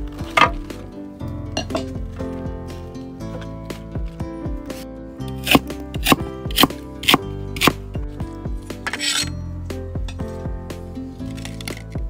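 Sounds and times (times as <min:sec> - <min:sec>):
background music: 0:00.0 - 0:12.0
knife chopping cabbage: 0:05.4 - 0:07.8.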